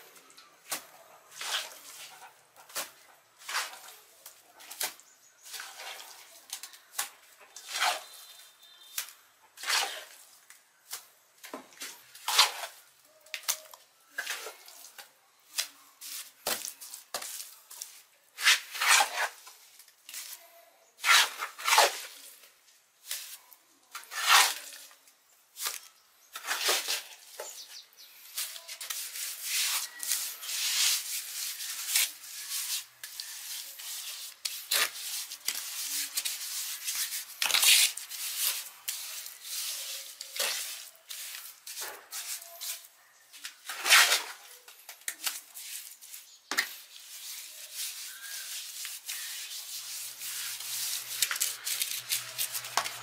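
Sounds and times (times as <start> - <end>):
scraping on a hard surface: 7.5 - 8.5, 9.6 - 10.2, 17.2 - 19.5, 21.0 - 22.4, 24.0 - 24.9, 25.6 - 42.9, 43.5 - 44.6, 45.3 - 53.0.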